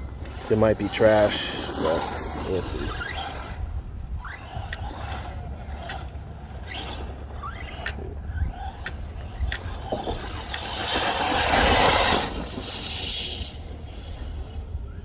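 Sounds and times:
electric motor whining: 0:00.0 - 0:15.0
sharp ticks: 0:04.5 - 0:07.0, 0:07.6 - 0:11.0.

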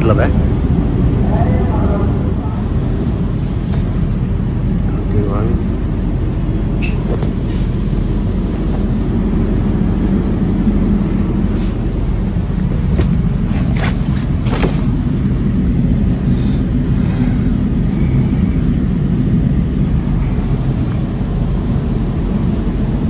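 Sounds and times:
train carriage low rumble: 0:00.0 - 0:23.0.

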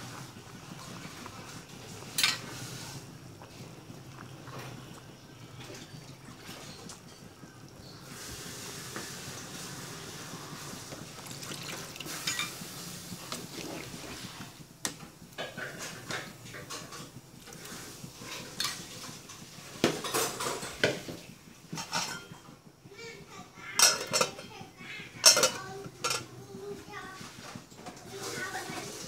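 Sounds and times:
soup boiling in a pot: 0:00.0 - 0:29.0
ladle scraping a metal pot: 0:11.3 - 0:14.4.

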